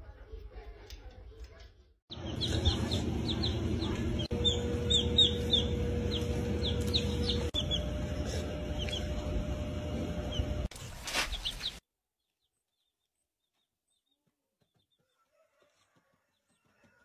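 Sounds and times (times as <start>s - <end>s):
baby chicks peeping: 2.1s - 17.0s.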